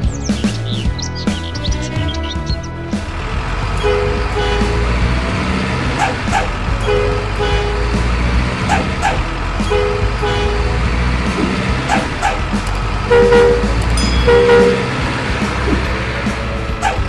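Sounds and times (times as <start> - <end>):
background music: 0.0 - 17.0
heavy truck engine running: 0.0 - 17.0
two-note horn toots: 3.7 - 12.4, 13.0 - 15.9.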